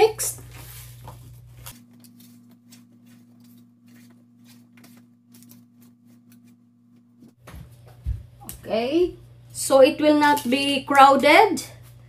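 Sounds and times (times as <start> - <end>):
vegetables rustling on paper: 0.2 - 6.6.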